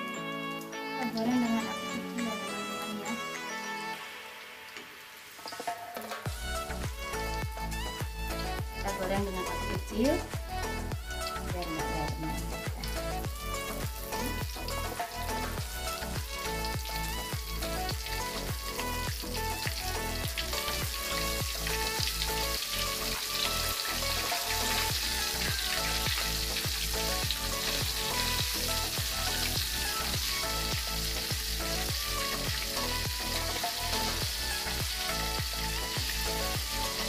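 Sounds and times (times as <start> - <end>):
background music with even beat: 0.0 - 37.0
chicken pieces sizzling in hot oil: 3.9 - 37.0.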